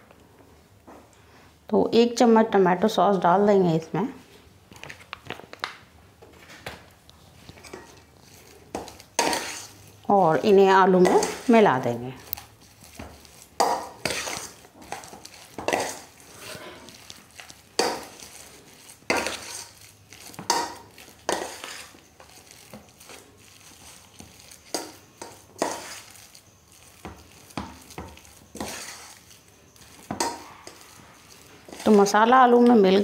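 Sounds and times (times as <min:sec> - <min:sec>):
spoon scraping steel bowl: 0:07.5 - 0:32.8.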